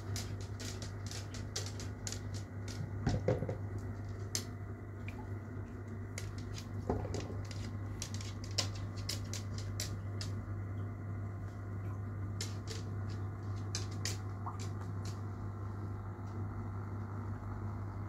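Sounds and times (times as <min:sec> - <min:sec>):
tank equipment low hum: 0:00.0 - 0:18.0
aquarium air bubbles popping: 0:04.9 - 0:05.8.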